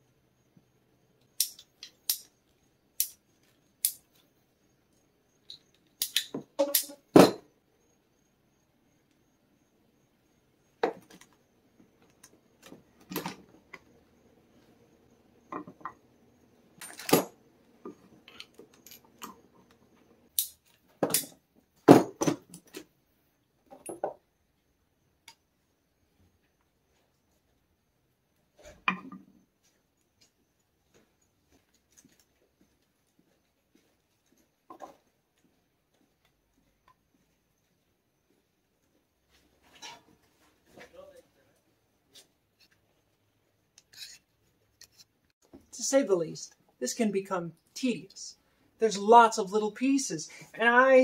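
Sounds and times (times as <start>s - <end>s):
metal fittings and tools clinking: 16.8s - 17.3s.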